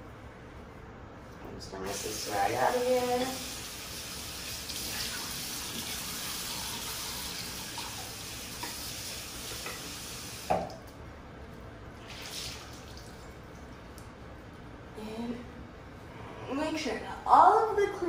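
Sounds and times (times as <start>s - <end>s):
sink tap running: 3.2s - 10.8s.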